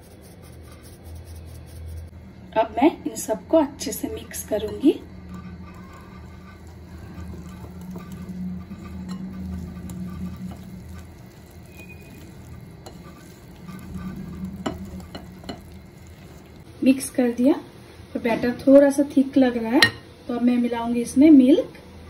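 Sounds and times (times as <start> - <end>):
whisk stirring batter: 0.0 - 2.1, 3.3 - 16.7.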